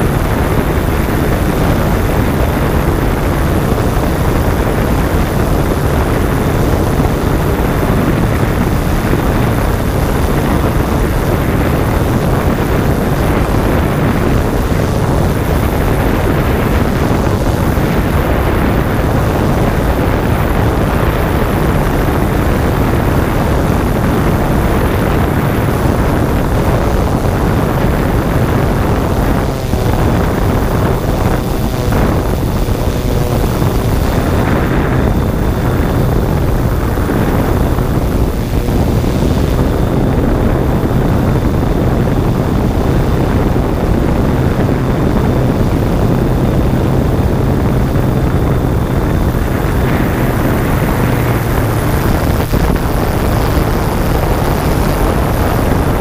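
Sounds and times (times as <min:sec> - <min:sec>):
drone rotors running: 0:00.0 - 0:56.0
wind on microphone: 0:00.0 - 0:56.0.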